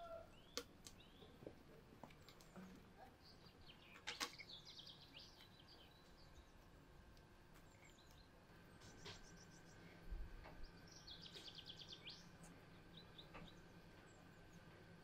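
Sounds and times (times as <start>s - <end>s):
faint bird chirps: 0.0s - 1.4s, 2.2s - 6.9s, 7.6s - 14.8s.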